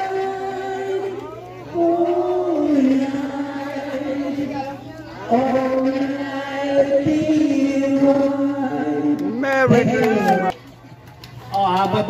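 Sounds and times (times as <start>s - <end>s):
voices singing slow song: 0.0s - 10.5s.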